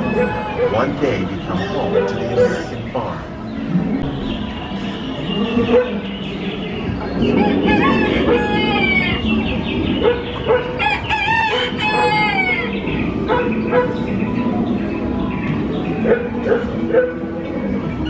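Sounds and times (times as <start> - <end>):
rooster crowing: 7.2 - 9.3, 10.8 - 12.8.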